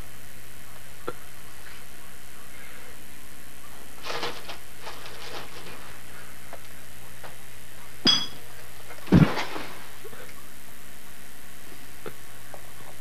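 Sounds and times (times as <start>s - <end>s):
glass bottle clinking: 8.1s - 8.4s.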